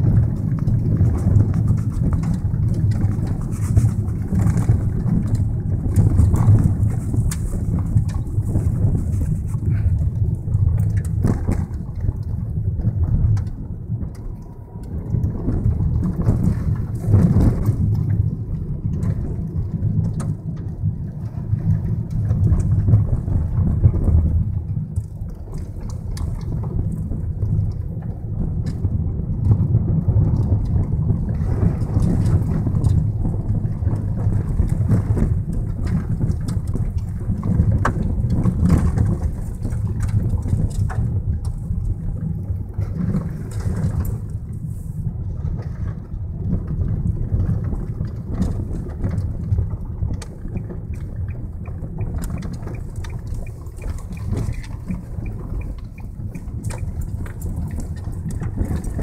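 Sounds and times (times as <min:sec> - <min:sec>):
car driving on gravel: 0:00.0 - 0:59.0
gravel ticks: 0:00.0 - 0:59.0.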